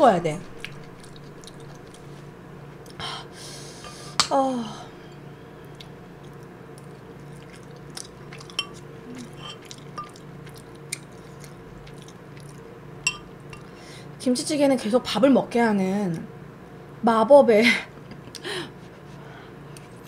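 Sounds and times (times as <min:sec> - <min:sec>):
quiet chewing: 0:00.4 - 0:03.0, 0:05.6 - 0:13.8
person slurping: 0:09.0 - 0:09.8.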